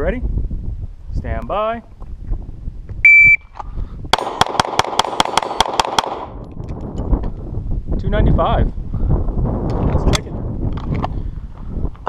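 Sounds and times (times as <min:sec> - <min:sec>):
shot timer beep: 0:03.0 - 0:03.4
rapid pistol shots: 0:04.1 - 0:06.4.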